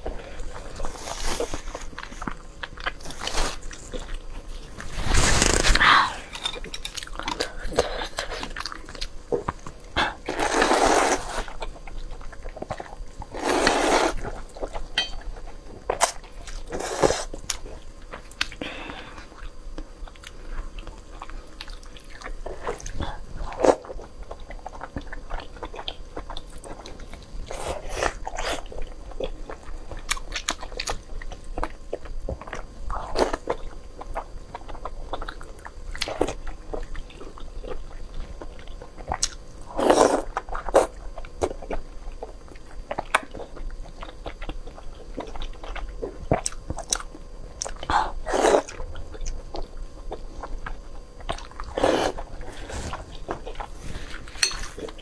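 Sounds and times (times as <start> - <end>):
person chewing noodles: 0.0 - 55.0
slurping: 13.3 - 14.2.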